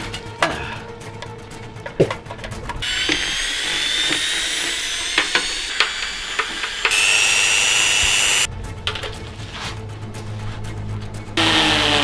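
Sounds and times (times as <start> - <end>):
electric drill whining: 2.8 - 8.5, 11.4 - 12.0.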